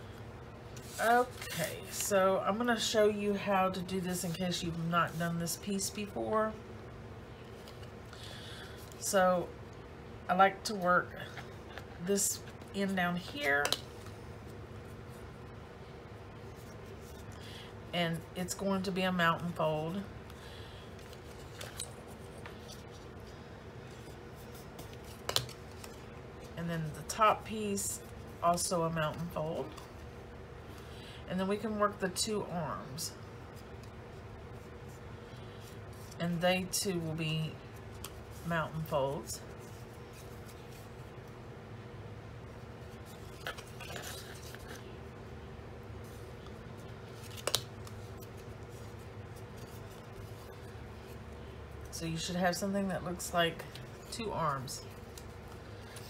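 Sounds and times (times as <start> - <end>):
steady low hum: 0.0 - 56.0
cardstock folding and crinkling: 19.4 - 26.5, 42.9 - 45.0, 46.0 - 51.9
paper scratching and rustling: 42.9 - 44.9, 46.0 - 51.2.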